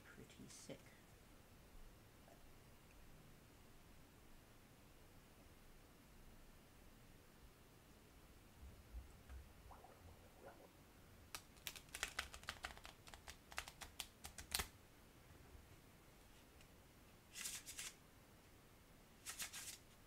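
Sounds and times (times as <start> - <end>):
playing cards riffle shuffling: 11.4 - 14.7, 17.3 - 18.0, 19.2 - 19.8.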